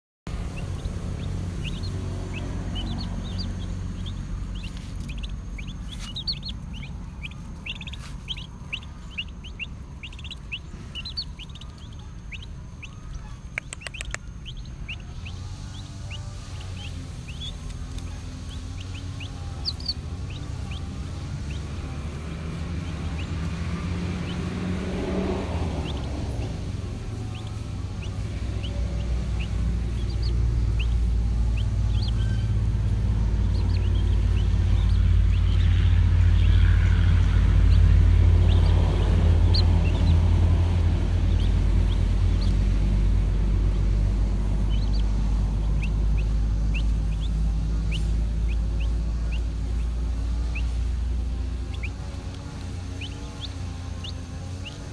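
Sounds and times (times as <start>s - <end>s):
chicks peeping: 0.3s - 54.9s
low rumble: 0.3s - 54.9s.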